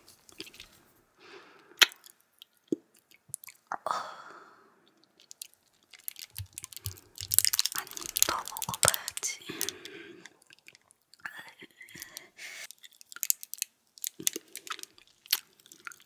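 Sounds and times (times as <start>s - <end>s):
plastic crackling: 5.2s - 10.8s, 11.9s - 16.0s.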